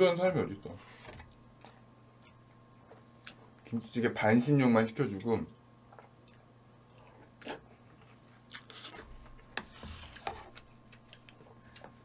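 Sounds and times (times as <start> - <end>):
chewing: 5.9 - 9.5.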